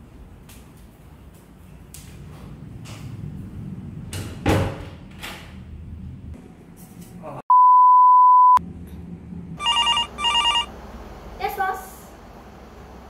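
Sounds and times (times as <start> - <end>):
censor bleep: 7.5 - 8.6.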